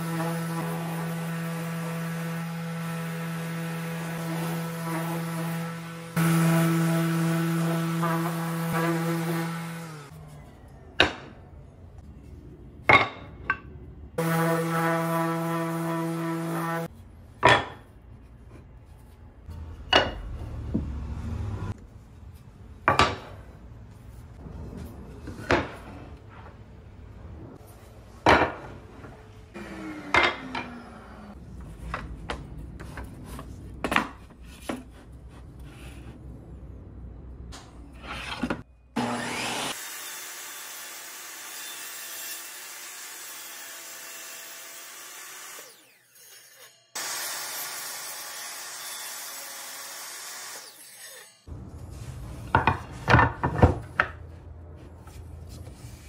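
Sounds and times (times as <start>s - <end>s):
table saw running: 39.0s - 50.8s.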